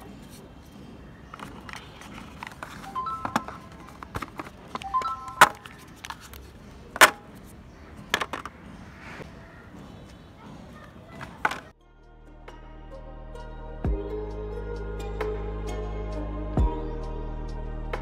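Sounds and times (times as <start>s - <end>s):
plastic accessories clacking in box: 0.0s - 9.0s, 10.8s - 11.7s.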